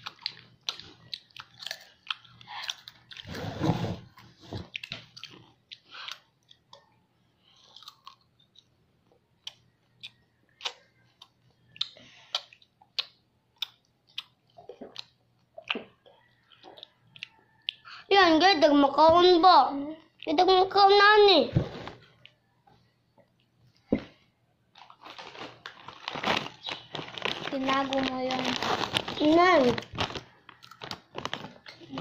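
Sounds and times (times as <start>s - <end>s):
chewing crunchy food: 0.0s - 3.3s, 4.1s - 18.0s, 24.7s - 31.9s.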